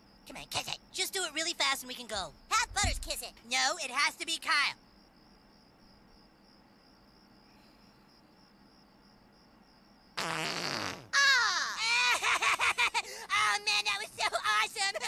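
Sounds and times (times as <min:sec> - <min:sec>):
cartoon fart sound effect: 0:10.2 - 0:11.2.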